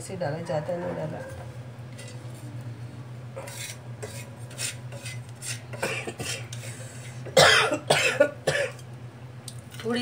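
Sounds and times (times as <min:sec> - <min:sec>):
wooden spatula scraping spices in pan: 0:03.4 - 0:05.8.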